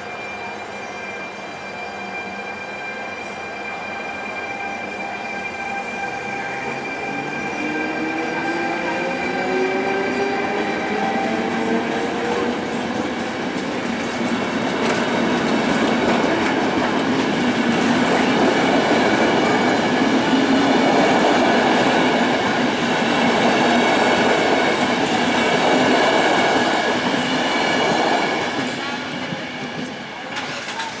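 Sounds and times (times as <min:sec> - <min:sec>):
train wheels rumbling on rails: 0:00.0 - 0:31.0
wheels clicking over rail joints: 0:30.3 - 0:31.0.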